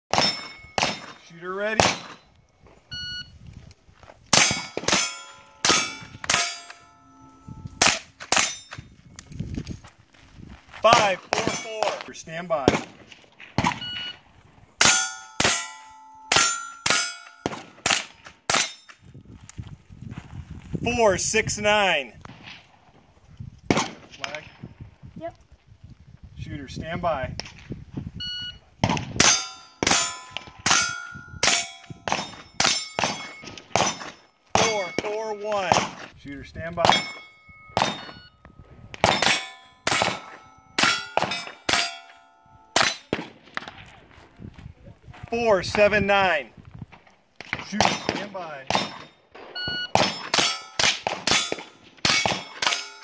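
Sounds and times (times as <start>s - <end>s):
rifle shots: 0.1s - 2.2s, 4.3s - 6.8s, 7.8s - 8.7s, 10.9s - 13.8s, 14.8s - 18.8s, 23.7s - 24.4s, 28.8s - 36.1s, 42.8s - 43.9s, 47.4s - 53.0s
steel plate target clanging: 0.1s - 2.2s, 4.4s - 8.8s, 14.8s - 19.0s, 29.2s - 35.2s, 36.8s - 38.3s, 39.0s - 43.1s, 49.9s - 53.0s.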